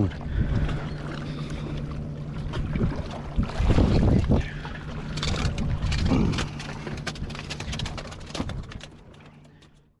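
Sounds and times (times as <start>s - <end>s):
wind buffeting microphone: 2.5s - 6.6s.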